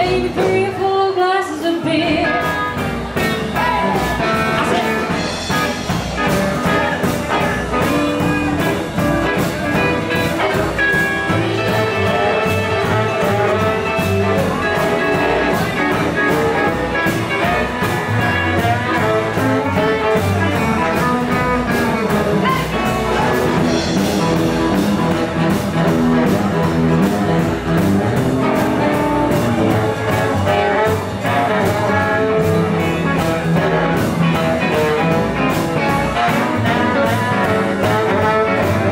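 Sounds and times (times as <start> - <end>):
live blues band playing: 0.0 - 38.9.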